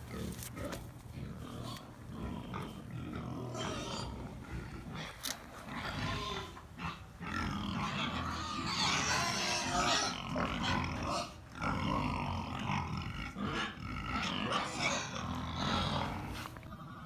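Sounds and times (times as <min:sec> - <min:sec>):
pigs grunting and squealing: 0:00.0 - 0:17.0.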